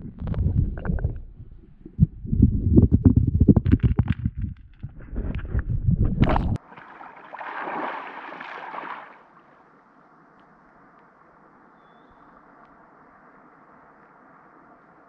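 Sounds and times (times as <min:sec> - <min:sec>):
muffled underwater thumping: 0:00.0 - 0:06.6
river water splashing: 0:06.6 - 0:09.8.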